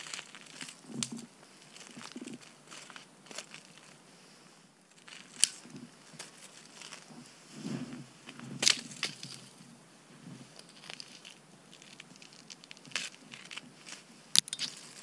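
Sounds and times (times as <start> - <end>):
twigs snapping: 0.0 - 4.0, 5.0 - 7.0, 8.6 - 9.4, 10.6 - 15.0.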